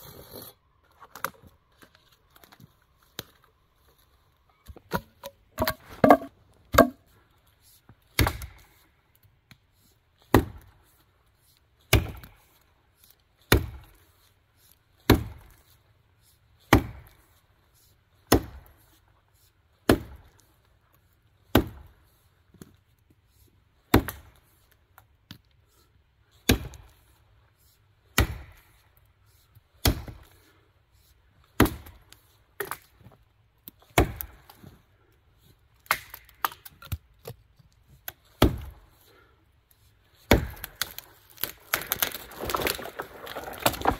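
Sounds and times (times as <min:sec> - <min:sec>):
axe chopping tree trunk: 0:04.9 - 0:07.0, 0:08.2 - 0:08.7, 0:10.3 - 0:10.7, 0:11.9 - 0:12.3, 0:13.5 - 0:14.0, 0:15.0 - 0:15.6, 0:16.7 - 0:17.2, 0:18.3 - 0:18.7, 0:19.8 - 0:20.3, 0:21.5 - 0:21.9, 0:23.9 - 0:24.4, 0:26.5 - 0:26.9, 0:28.2 - 0:28.8, 0:29.8 - 0:30.3, 0:31.6 - 0:32.0, 0:33.9 - 0:34.6, 0:35.8 - 0:37.4, 0:38.3 - 0:38.8, 0:40.2 - 0:43.9.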